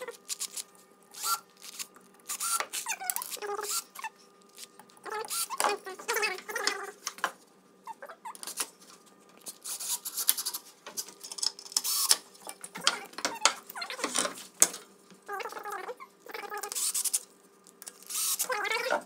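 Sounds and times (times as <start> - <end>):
screws squeaking in wood: 1.2 - 4.1, 5.0 - 6.9, 11.8 - 12.2, 12.8 - 14.3, 15.4 - 17.2, 18.0 - 19.0
cordless drill driving screws: 18.1 - 18.5.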